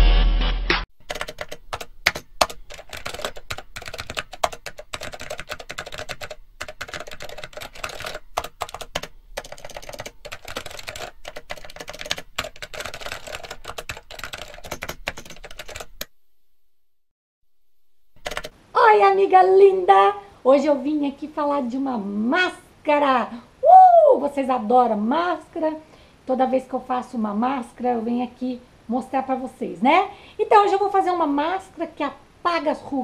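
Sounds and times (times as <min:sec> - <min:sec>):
keyboard typing clicks: 0:01.0 - 0:16.1, 0:18.2 - 0:18.5.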